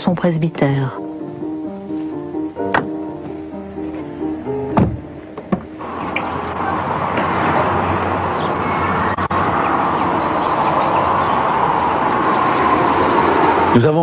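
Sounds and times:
rushing outdoor background noise: 0.0s - 14.0s
faint bird chirps: 6.0s - 6.6s.

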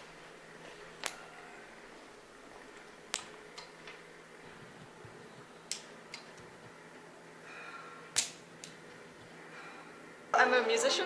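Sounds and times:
faint low hum: 0.0s - 11.0s
sharp clicks: 5.7s - 6.5s.

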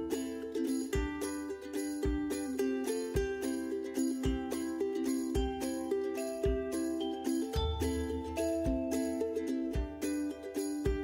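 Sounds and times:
light melody over low beat: 5.3s - 11.0s.

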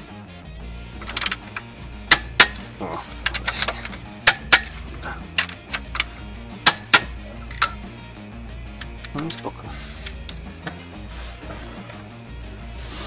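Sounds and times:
metal tools clinking and knocking: 1.0s - 7.9s, 8.8s - 10.8s.

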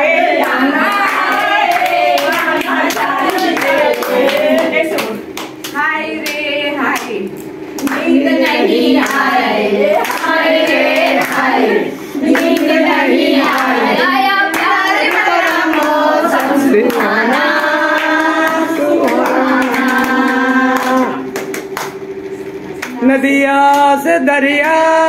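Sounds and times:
women singing together: 0.0s - 21.5s
hands clapping: 0.4s - 9.3s, 10.0s - 11.6s, 12.2s - 13.8s, 14.5s - 22.1s, 22.8s - 23.0s.

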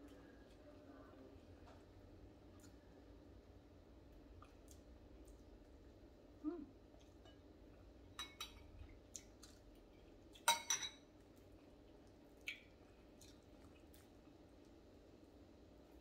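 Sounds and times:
spoon clinking dishes: 8.2s - 8.6s, 10.4s - 11.0s.

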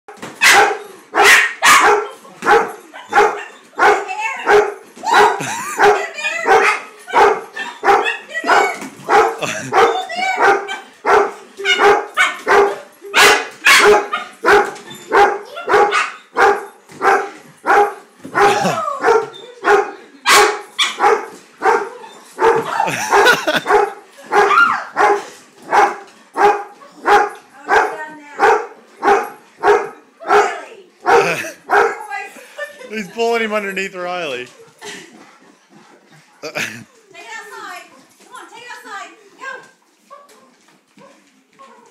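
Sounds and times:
dog barking sharply: 0.4s - 27.3s.

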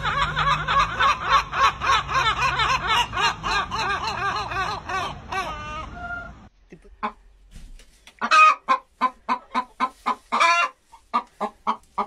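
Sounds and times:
gulls laughing calls: 0.0s - 6.5s.

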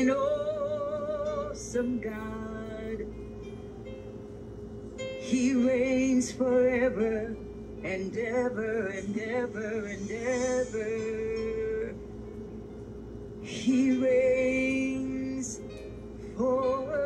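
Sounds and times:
solo voice singing: 0.0s - 3.1s, 5.2s - 12.0s, 13.4s - 17.0s
held instrumental chord: 0.0s - 17.0s.

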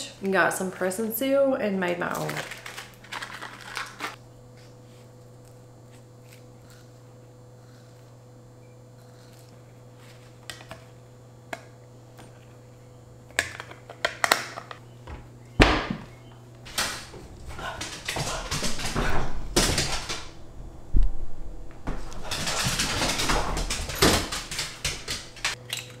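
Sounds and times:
steady low hum: 0.0s - 25.9s
heavy door thunk: 17.0s - 20.3s.

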